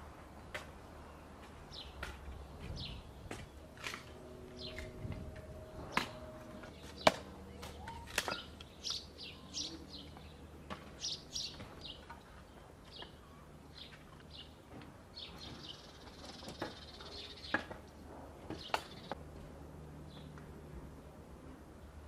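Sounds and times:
small birds chirping: 0.4 - 3.7, 5.8 - 19.2.

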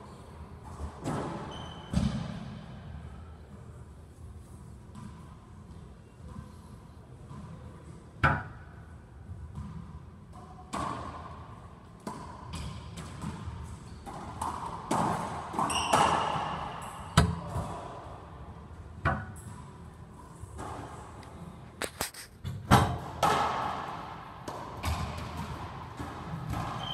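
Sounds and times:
racquetball hits echoing: 0.8 - 3.0, 9.4 - 18.1, 22.4 - 26.9.

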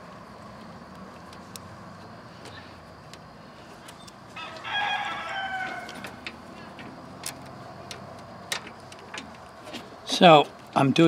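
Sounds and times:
rooster crowing: 4.3 - 6.7.

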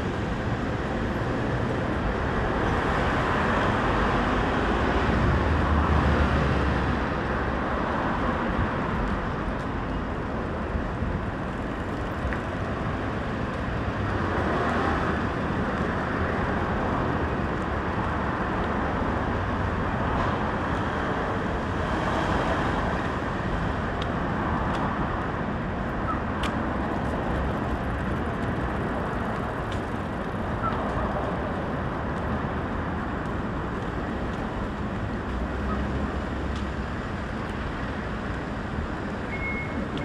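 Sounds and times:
city street traffic: 0.0 - 40.0
repeated beep: 39.3 - 39.8.

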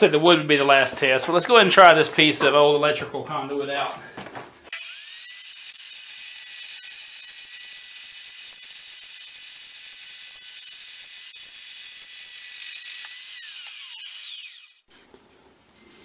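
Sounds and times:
chop saw cutting metal: 4.7 - 14.9
saw motor whine: 4.7 - 14.9.

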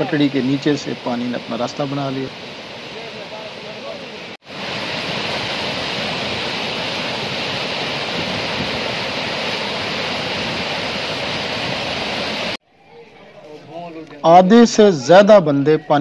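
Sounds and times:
floodwater rushing: 0.0 - 12.6.

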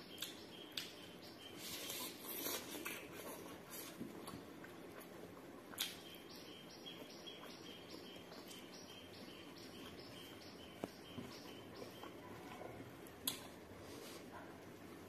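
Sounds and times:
faint high chirping: 5.8 - 12.8.

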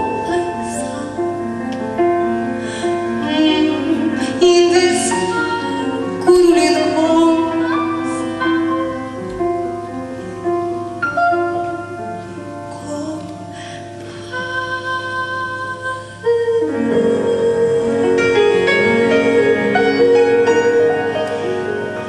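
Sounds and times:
woman singing into a microphone: 0.0 - 1.5, 2.6 - 9.2, 12.7 - 21.8
musical accompaniment: 0.0 - 22.0.

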